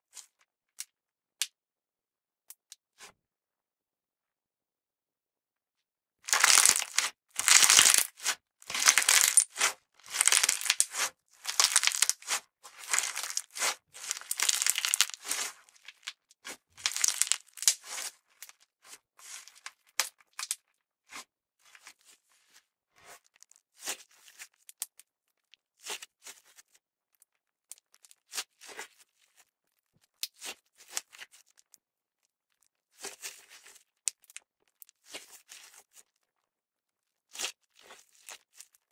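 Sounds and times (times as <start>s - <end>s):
slime squelching and crackling: 6.3s - 21.2s.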